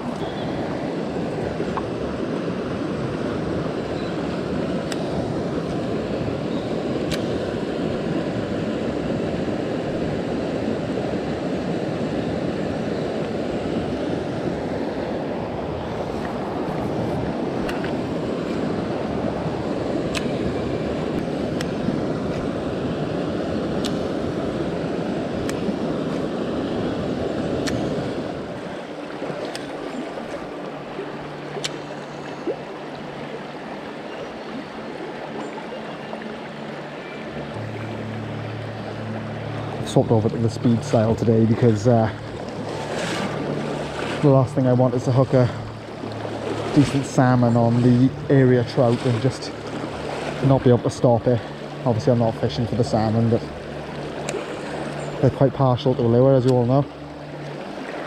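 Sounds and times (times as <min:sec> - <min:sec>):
river water rushing over rocks: 0:00.0 - 0:58.0
faint sharp clicks: 0:07.1 - 0:07.3, 0:29.4 - 0:29.8, 0:54.2 - 0:54.4.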